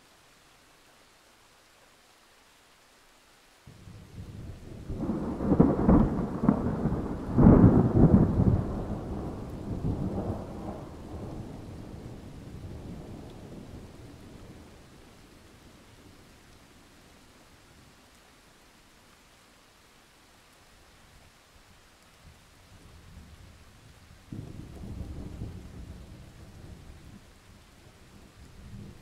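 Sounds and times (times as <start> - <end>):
rolling thunder: 3.8 - 14.7, 24.3 - 27.2.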